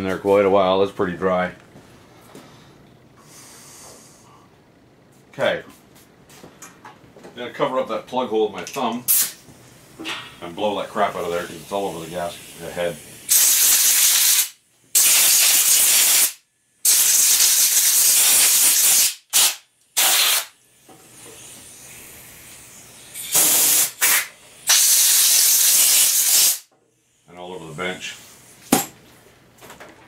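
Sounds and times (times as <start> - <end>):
air blow gun hissing: 9.1 - 9.4, 11.0 - 26.7.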